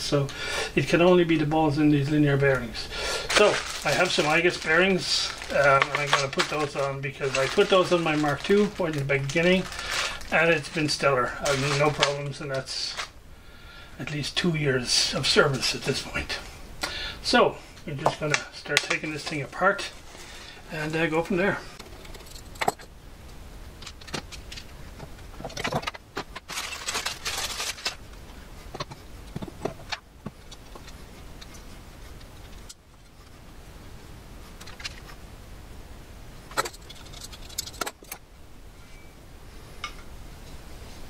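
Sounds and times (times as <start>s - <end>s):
metal tools clinking and rattling: 21.9s - 22.9s, 36.5s - 38.2s.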